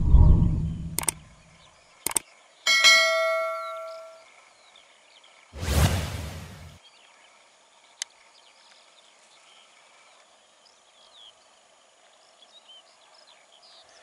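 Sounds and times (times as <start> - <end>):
birds chirping: 0.7 - 6.8
sharp click: 1.0 - 1.2, 2.0 - 2.2
loud rush of noise: 5.6 - 6.8.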